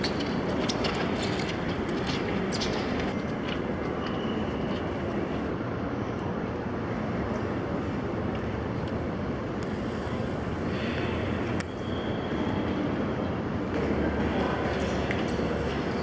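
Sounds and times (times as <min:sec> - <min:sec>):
footsteps: 0:00.0 - 0:05.3
distant crowd voices: 0:00.0 - 0:16.0.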